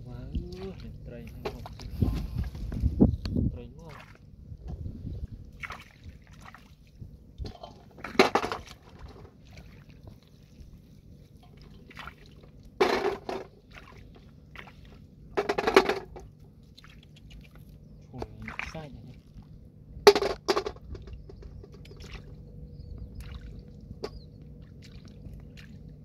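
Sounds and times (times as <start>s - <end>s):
hands splashing in muddy water: 5.6s - 6.9s, 16.7s - 17.8s, 23.1s - 26.0s.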